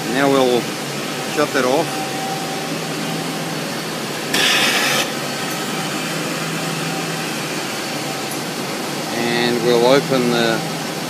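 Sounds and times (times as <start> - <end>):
steam hissing from steam trap: 4.0 - 6.1.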